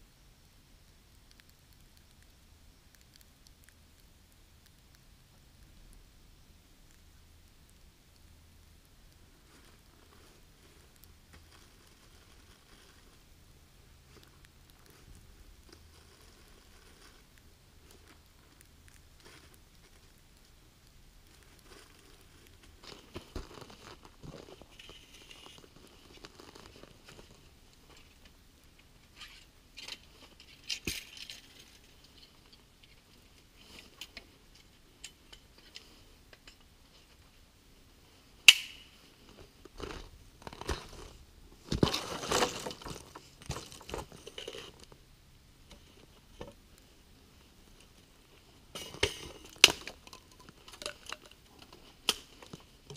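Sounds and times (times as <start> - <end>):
dry sticks being handled: 21.3 - 37.4, 38.5 - 45.0, 47.7 - 52.9
sharp crack of wood: 38.5 - 38.9.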